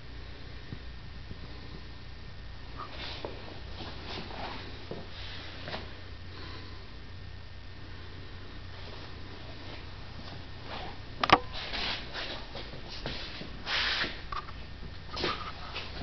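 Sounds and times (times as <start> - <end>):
steady low hum: 0.0 - 16.0
scuffs and rustles: 2.8 - 6.0, 8.7 - 14.3, 15.1 - 16.0.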